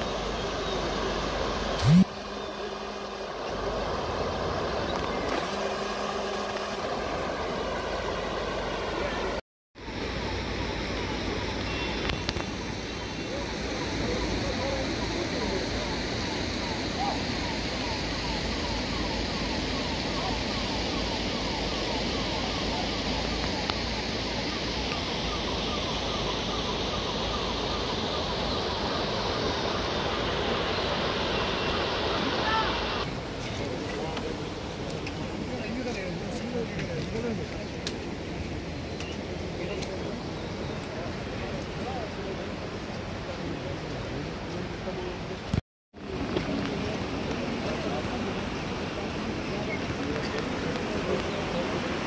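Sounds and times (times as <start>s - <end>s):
floodwater rushing: 0.0s - 9.4s, 21.6s - 36.3s, 41.1s - 52.0s.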